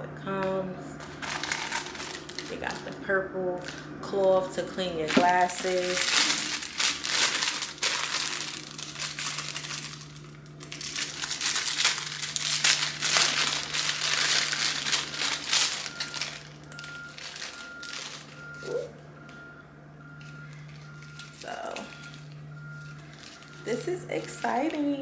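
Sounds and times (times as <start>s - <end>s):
plastic packaging crinkling: 0.9s - 18.8s, 20.1s - 25.0s
faint reversing alarm beeping: 15.7s - 25.0s.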